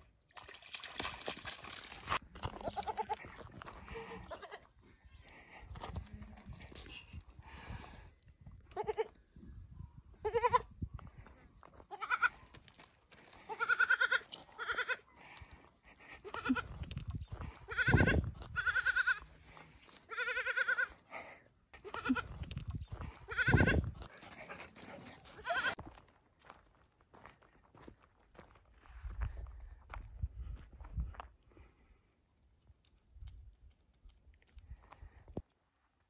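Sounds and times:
goat kid bleating: 2.5s - 3.2s, 4.1s - 4.7s, 8.7s - 9.2s, 10.2s - 10.7s, 11.9s - 12.5s, 13.4s - 15.1s, 16.2s - 16.8s, 17.7s - 19.2s, 20.1s - 21.0s, 21.8s - 22.4s, 23.3s - 23.9s, 25.4s - 25.8s.

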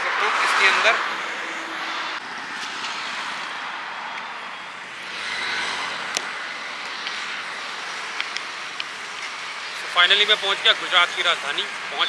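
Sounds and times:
motorcycle road noise: 0.0s - 12.0s.

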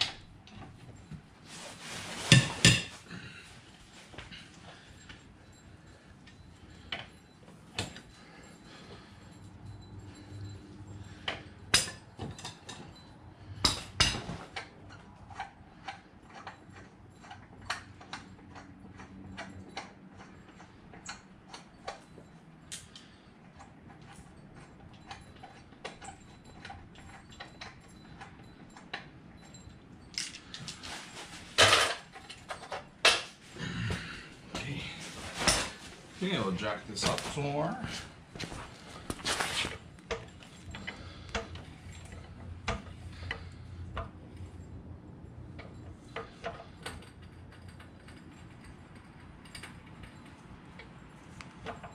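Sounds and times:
metal tool clicks and clinks: 23.9s - 33.3s.

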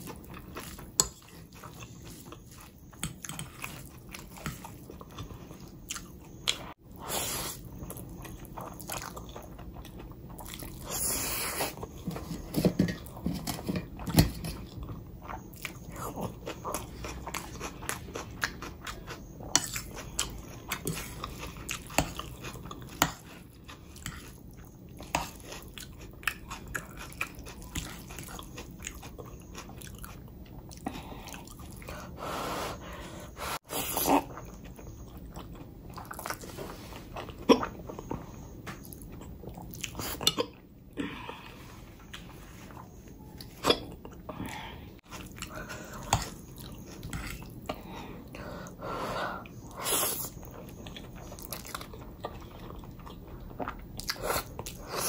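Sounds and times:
chewing and crunchy bites: 13.0s - 32.0s.

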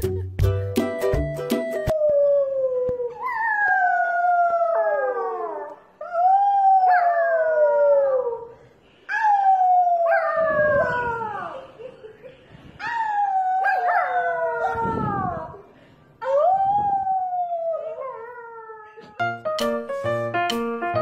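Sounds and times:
puppy howling: 9.2s - 11.7s, 12.8s - 15.6s.

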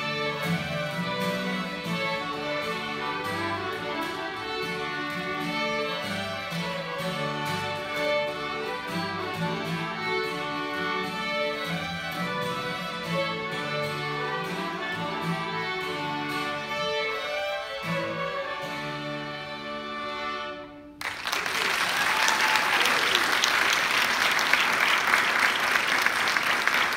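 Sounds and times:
acoustic guitar: 0.0s - 21.0s
violins playing: 0.0s - 21.1s
audience applause: 21.0s - 26.9s.

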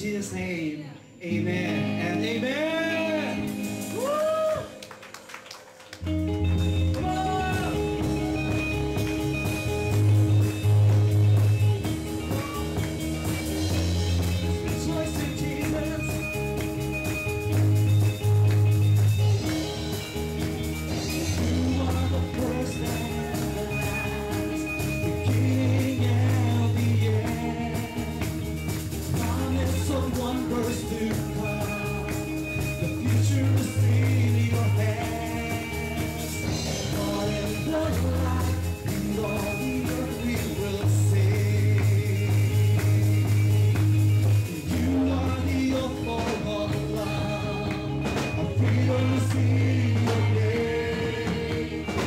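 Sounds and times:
man singing into a microphone: 0.0s - 4.6s, 14.5s - 16.6s, 21.0s - 28.2s, 29.1s - 43.6s, 44.5s - 52.0s
worship band music with bass: 0.0s - 5.2s, 5.9s - 52.0s.

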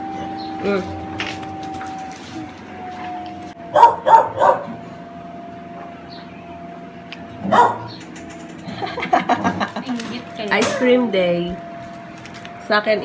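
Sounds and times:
dog barking: 3.7s - 4.8s, 7.4s - 8.0s.

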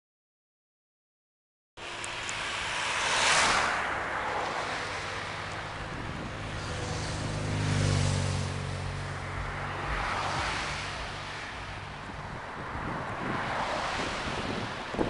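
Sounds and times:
vehicle passing: 1.8s - 15.0s
wind on microphone: 5.8s - 7.3s, 9.4s - 15.0s.

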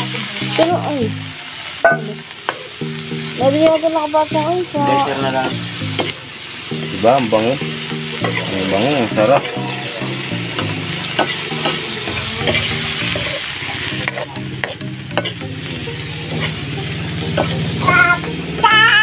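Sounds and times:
meat sizzling in oil: 0.0s - 19.0s
metal ladle scraping wok: 8.1s - 16.6s.

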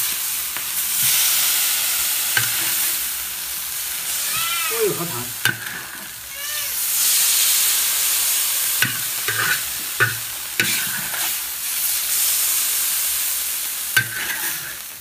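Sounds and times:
sauce sizzling in a wok: 0.0s - 15.0s
metal spatula scraping wok: 2.4s - 3.0s, 5.0s - 6.2s, 8.8s - 11.4s, 14.0s - 14.9s.

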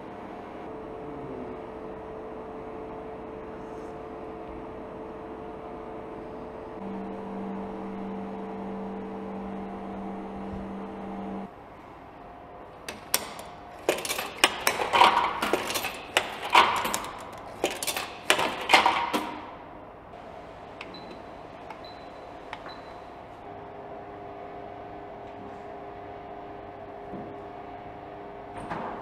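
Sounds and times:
electrical hum: 0.0s - 29.0s
coins rattling through coin mechanism: 12.9s - 19.5s.

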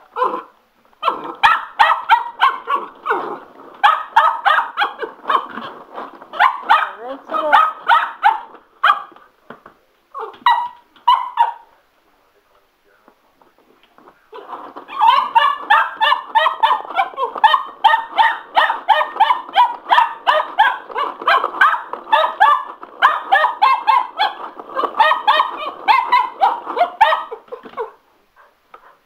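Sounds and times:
puppy yapping: 0.1s - 5.7s, 6.3s - 9.2s, 10.2s - 11.7s, 14.3s - 29.0s.

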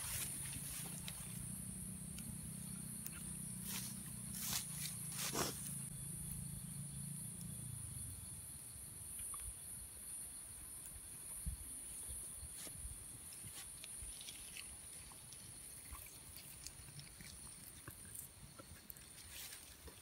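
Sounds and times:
high-pitched insect drone: 0.0s - 8.9s.

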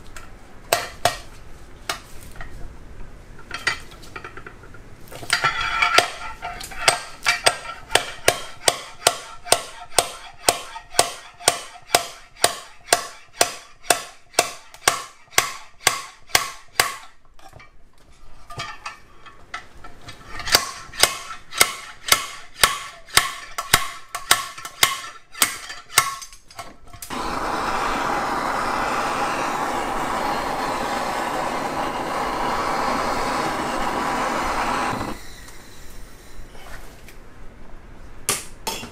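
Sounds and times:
propane torch hissing: 27.1s - 36.5s.

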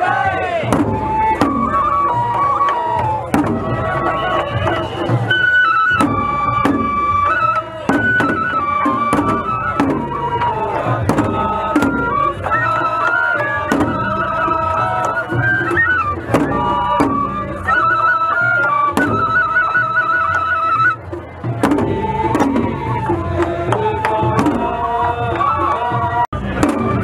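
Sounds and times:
bamboo flutes trilling melody: 0.0s - 27.0s
large drum strikes: 0.6s - 1.8s, 7.9s - 12.2s, 21.4s - 25.3s, 26.4s - 27.0s.

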